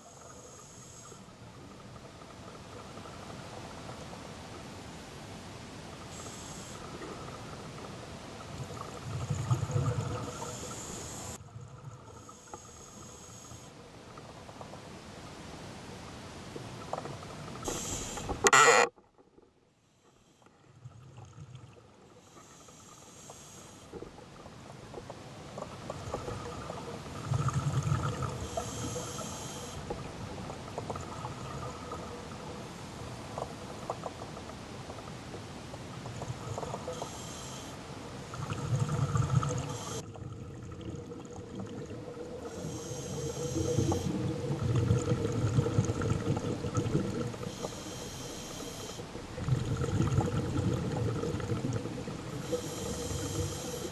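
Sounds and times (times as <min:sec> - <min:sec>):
regulator inhale hiss: 0:00.0 - 0:01.3, 0:06.1 - 0:07.0, 0:10.2 - 0:11.4, 0:12.2 - 0:13.8, 0:17.6 - 0:18.5, 0:22.2 - 0:24.0, 0:28.4 - 0:29.9, 0:36.9 - 0:37.9, 0:39.4 - 0:40.1, 0:42.4 - 0:44.3, 0:47.3 - 0:49.2, 0:52.3 - 0:53.9
faint steady hum: 0:00.0 - 0:53.9
exhaled bubbles rumbling: 0:06.8 - 0:10.6, 0:25.6 - 0:28.6, 0:29.9 - 0:32.6, 0:38.3 - 0:47.6, 0:49.1 - 0:53.9.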